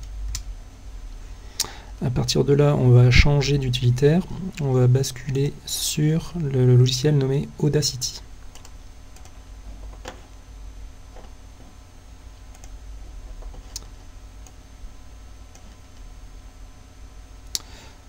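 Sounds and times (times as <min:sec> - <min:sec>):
low hum: 0:00.0 - 0:18.0
computer mouse clicks: 0:08.5 - 0:09.4, 0:12.5 - 0:12.8.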